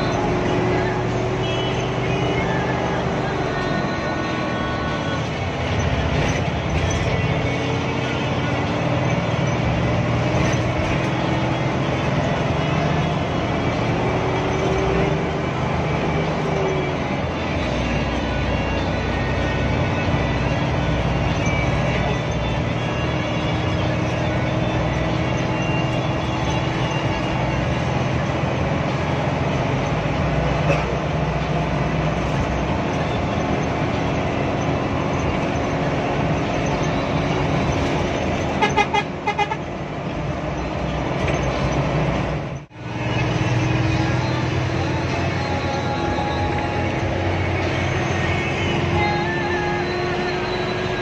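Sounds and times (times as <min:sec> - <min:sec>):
bus diesel engine: 0:00.0 - 0:51.0
road noise: 0:00.0 - 0:51.0.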